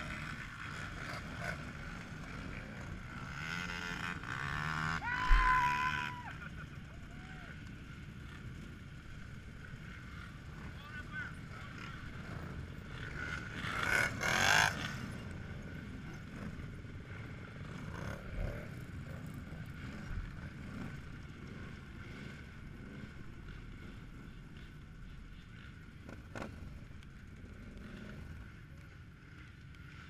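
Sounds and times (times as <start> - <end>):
engine revving: 0.0 - 6.2, 11.7 - 15.2
atv engines idling: 0.0 - 30.0.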